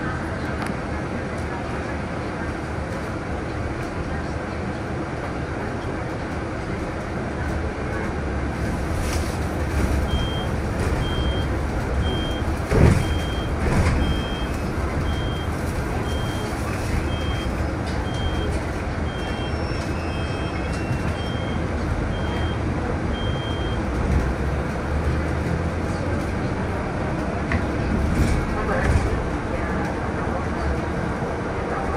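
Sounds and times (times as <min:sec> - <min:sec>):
engine rumble: 0:00.0 - 0:31.9
street traffic: 0:00.0 - 0:31.9
truck reversing alarm beeping: 0:10.1 - 0:23.8.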